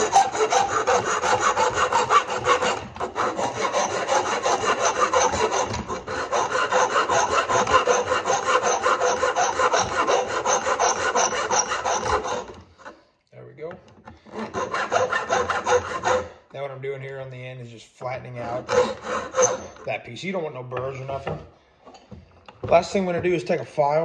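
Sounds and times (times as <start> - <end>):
metal file rasping on steel: 0.0 - 13.0, 14.2 - 16.4, 18.4 - 19.9.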